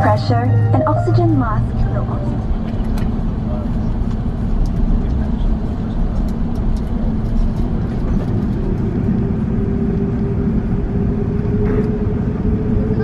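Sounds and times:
steady high tone: 0.0s - 2.6s
aircraft cabin engine rumble: 0.0s - 13.0s.

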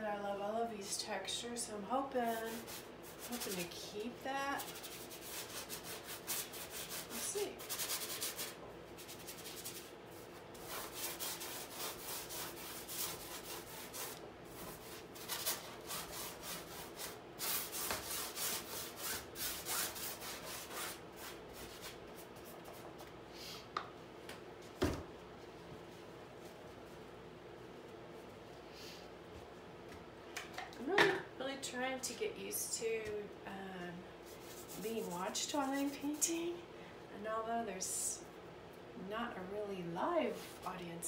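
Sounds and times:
paintbrush scrubbing on canvas: 2.3s - 22.8s, 34.3s - 36.2s.

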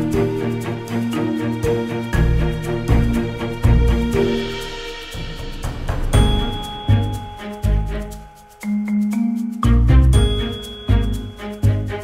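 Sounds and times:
background music with melody: 0.0s - 12.0s
light percussion: 0.0s - 12.0s
deep bass notes: 2.2s - 4.4s, 9.6s - 12.0s.

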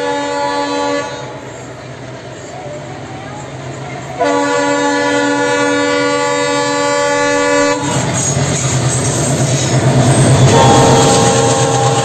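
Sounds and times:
locomotive horn blast: 0.0s - 1.4s, 4.2s - 8.1s, 10.5s - 12.0s
diesel locomotive passing: 0.0s - 12.0s.

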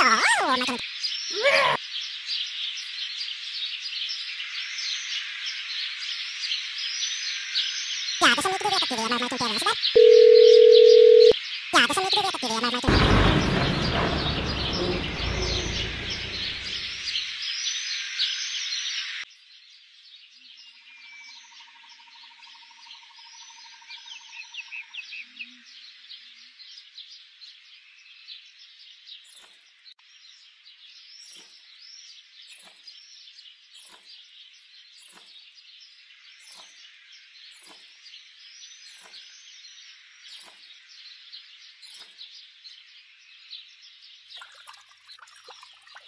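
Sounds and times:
birds chirping: 8.2s - 17.2s, 44.4s - 46.0s
loud rushing noise: 12.9s - 17.1s.

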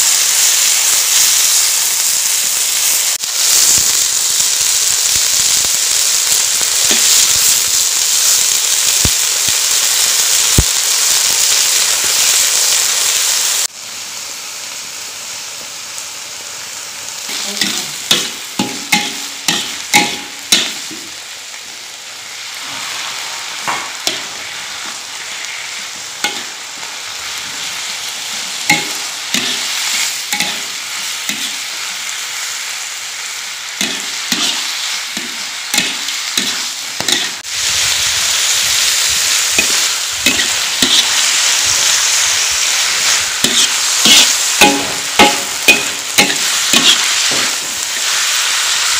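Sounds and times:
peppers sizzling in hot oil: 0.0s - 48.9s
metal spatula scraping a wok: 17.3s - 20.9s, 28.7s - 31.7s, 33.8s - 48.9s.

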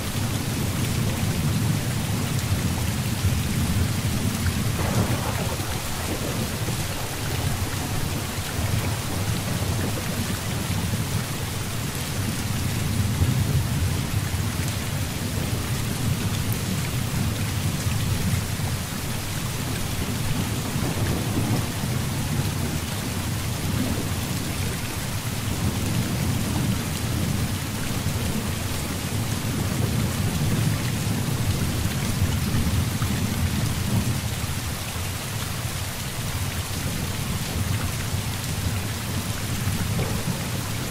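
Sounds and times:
heavy rain hissing: 0.0s - 40.9s
thunder rumbling: 1.0s - 14.6s, 20.0s - 24.8s, 38.5s - 40.9s.

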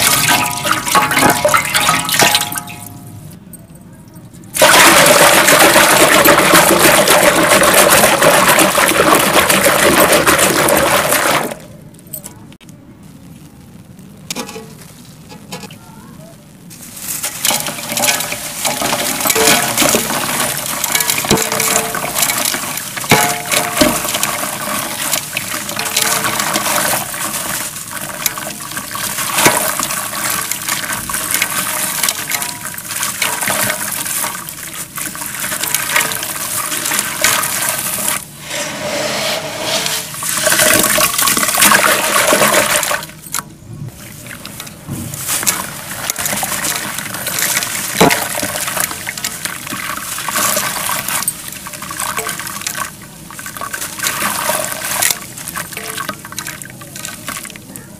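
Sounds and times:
water sloshing and splashing: 0.0s - 2.9s, 4.6s - 11.6s, 16.9s - 57.9s
grit crunching and crackling: 16.6s - 57.9s.

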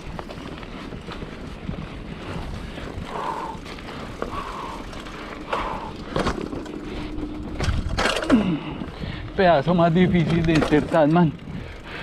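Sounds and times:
bike tyre noise on dirt: 0.0s - 12.0s
wind noise: 0.0s - 12.0s
bike knocking over bumps: 3.6s - 8.6s, 10.1s - 11.4s.

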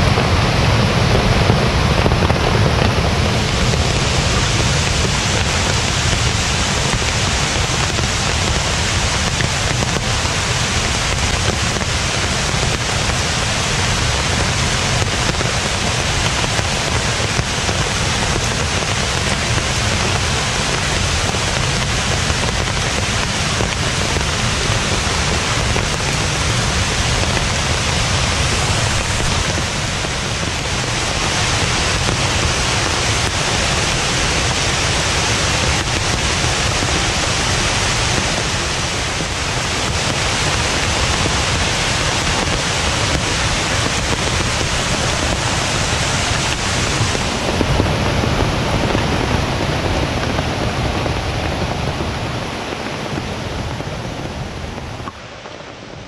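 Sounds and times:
water rushing: 0.0s - 56.0s.

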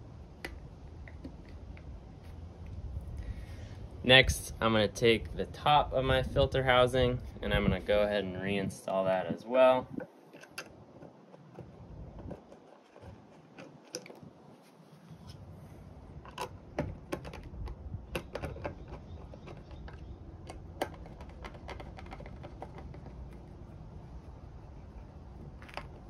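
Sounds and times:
low steady hum: 0.0s - 26.0s
plastic housing clicks and knocks: 10.0s - 13.0s, 16.2s - 23.4s.

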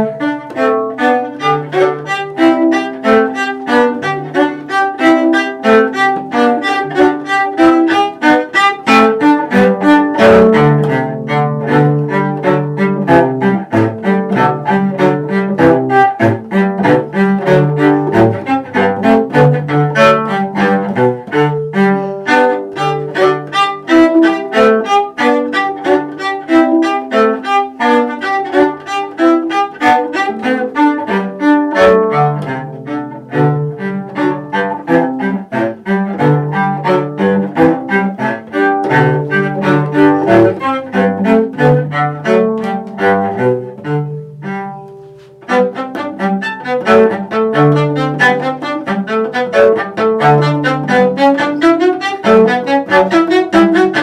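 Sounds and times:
bowed cello: 0.0s - 54.0s.

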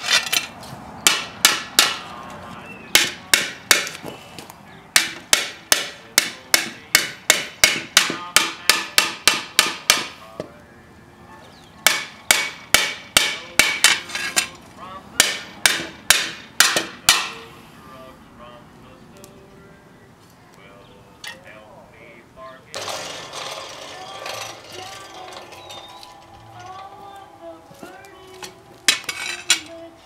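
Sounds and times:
hammer striking hot steel: 1.0s - 2.0s, 3.0s - 4.0s, 5.0s - 10.2s, 11.9s - 14.5s, 15.2s - 17.4s, 28.9s - 29.7s.

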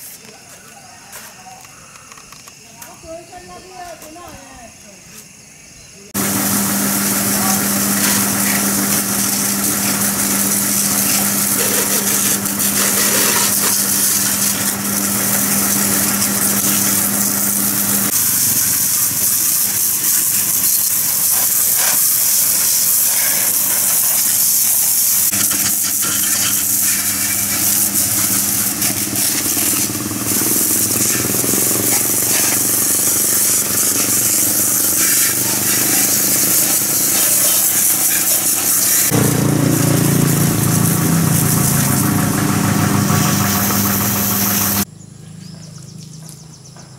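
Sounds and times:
pressure washer spray hissing: 6.1s - 44.9s
motor humming: 6.2s - 18.2s, 25.2s - 44.9s.

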